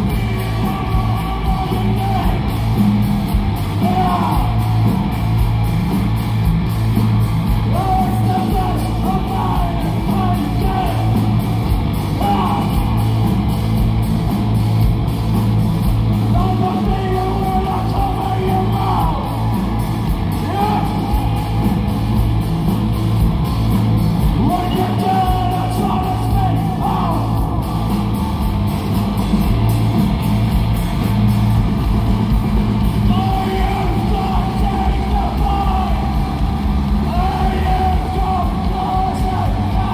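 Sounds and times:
man singing: 0.0 - 2.5, 7.7 - 11.2, 12.2 - 12.9, 16.3 - 19.4, 20.4 - 21.6, 24.4 - 27.4, 33.0 - 36.3, 37.0 - 39.9
bass guitar: 0.0 - 39.9
drum kit: 0.0 - 39.9
electric guitars: 0.0 - 39.9.

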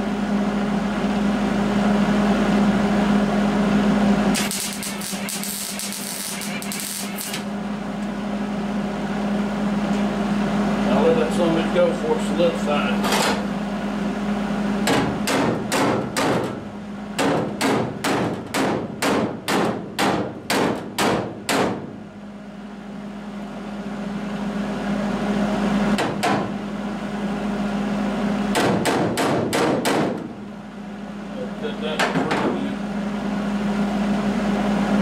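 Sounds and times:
steady low hum: 0.0 - 35.0
welder tack-weld bursts: 4.4 - 7.5.

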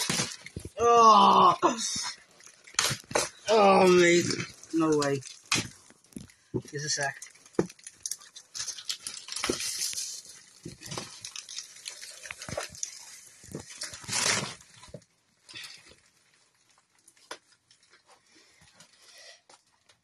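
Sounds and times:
plastic wrapping crackling: 0.0 - 20.0
packing tape tearing: 2.4 - 6.2, 7.2 - 14.9.

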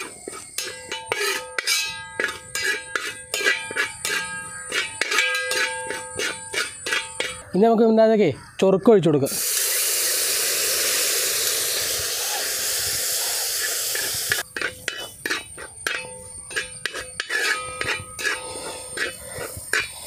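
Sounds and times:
metal ladle scraping pan: 0.0 - 7.5, 13.7 - 20.0
vinegar sizzling in hot oil: 9.3 - 20.0.

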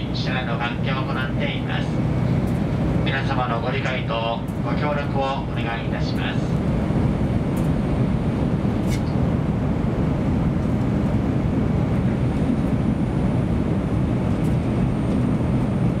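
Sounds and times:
faint high whine: 0.0 - 9.2, 12.8 - 16.0
train cabin low rumble: 0.0 - 16.0.

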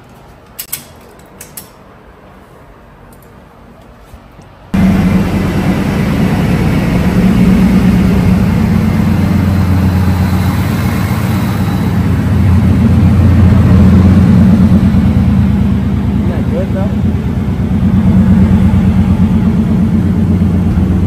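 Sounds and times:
truck engine idling: 4.8 - 21.0.

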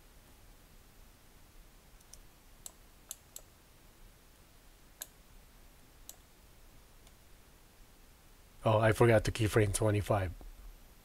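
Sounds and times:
mouse and keyboard clicks: 2.0 - 3.5.

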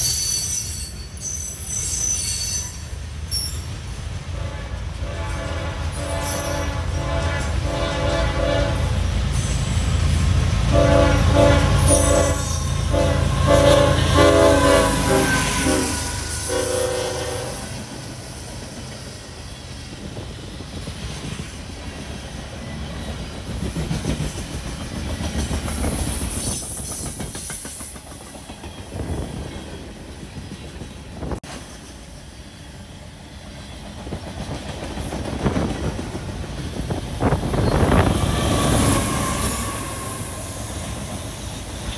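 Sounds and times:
train rumbling and clacking past: 0.0 - 41.9
locomotive horn blasts: 4.3 - 9.1, 10.7 - 17.9, 37.7 - 40.6.

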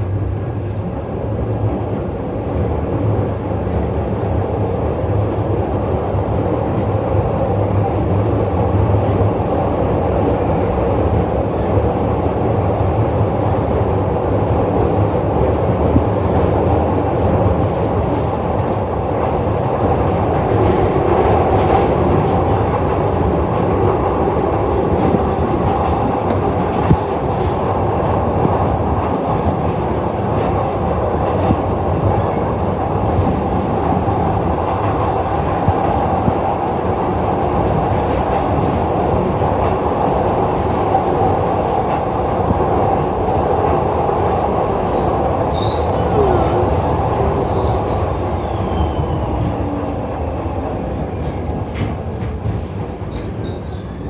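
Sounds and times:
train wheels rumbling on rail: 0.0 - 54.0
high-pitched wheel squeal: 44.9 - 54.0.

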